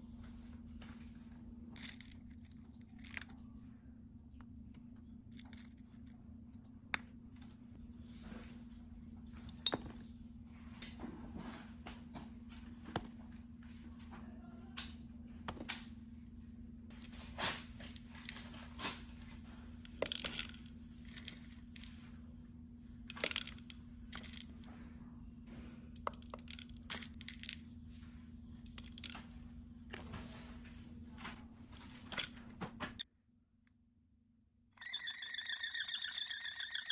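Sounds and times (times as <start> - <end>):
low hum: 0.0 - 33.0
small balls clicking and clinking: 1.8 - 3.5, 5.0 - 7.6, 19.7 - 22.1, 23.0 - 24.7, 26.0 - 27.6, 28.6 - 29.4, 34.8 - 36.9.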